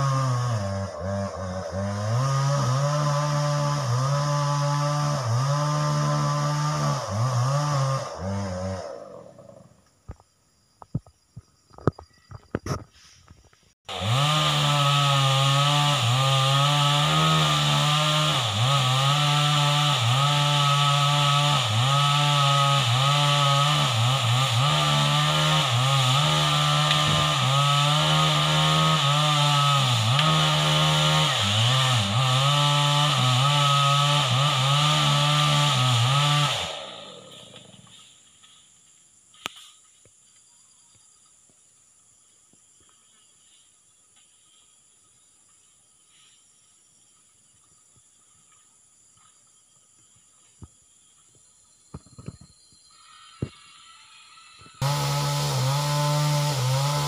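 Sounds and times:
chainsaw cutting at high speed: 0.0 - 9.8, 13.9 - 38.1, 52.9 - 57.0.

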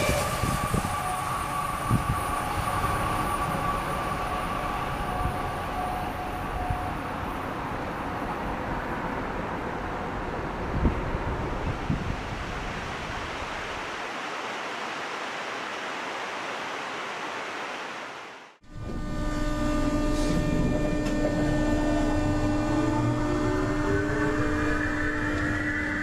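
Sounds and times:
train motor whine rising: 0.0 - 8.8, 18.7 - 26.0
electric train motors humming: 0.0 - 11.7, 18.6 - 26.0.

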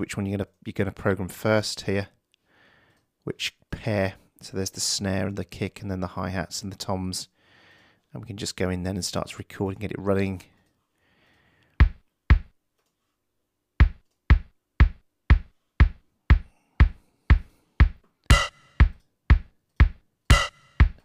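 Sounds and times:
drum machine kick drum: 11.8 - 12.5, 13.8 - 21.0
drum machine snare: 11.8 - 12.5, 13.8 - 21.0.

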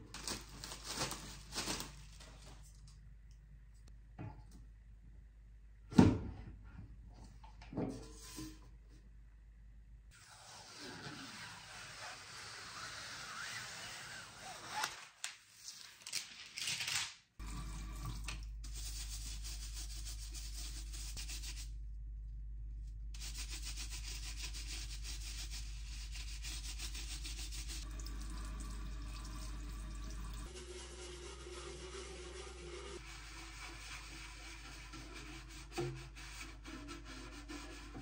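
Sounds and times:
plastic film crackling: 0.0 - 2.5, 14.7 - 17.2
running tap water: 17.4 - 18.6, 27.8 - 34.0
brush scrubbing tray: 18.6 - 21.7, 23.2 - 27.8, 30.4 - 38.0.

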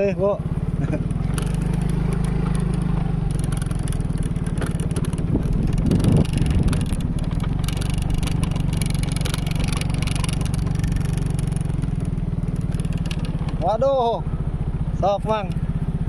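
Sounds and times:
scooter engine running: 0.0 - 16.0
rattling: 1.0 - 13.9.

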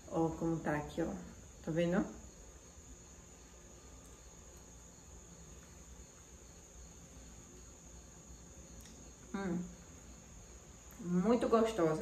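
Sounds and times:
insects chirring: 0.0 - 12.0.

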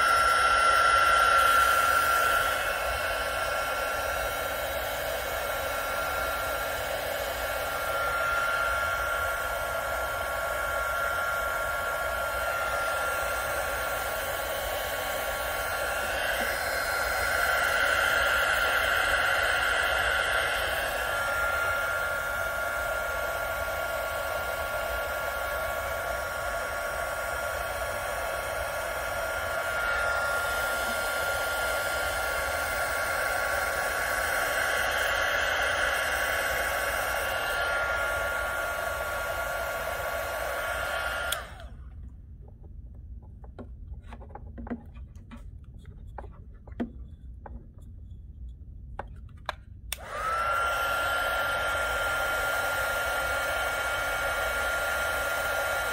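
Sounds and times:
heat gun blowing with whine: 0.0 - 42.3, 49.4 - 55.9
clicks and taps of handling wires: 42.0 - 48.1, 49.0 - 50.0.

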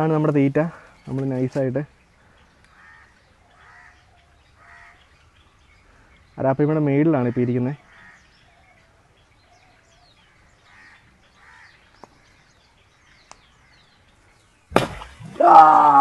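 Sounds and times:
faint birds chirping: 0.0 - 16.0
loud splash at water surface: 14.7 - 16.0.

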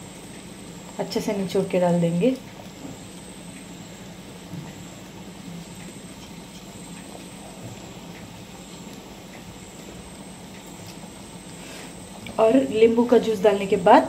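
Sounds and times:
syrup boiling in a pan: 3.0 - 12.3.

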